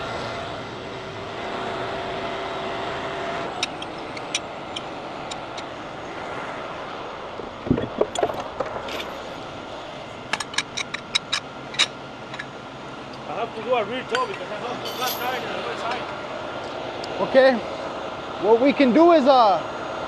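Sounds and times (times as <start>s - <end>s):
steady whine: 0.0s - 20.0s
tow truck engine running: 0.0s - 20.0s
chains clinking and clanking: 8.8s - 9.3s, 14.1s - 15.5s.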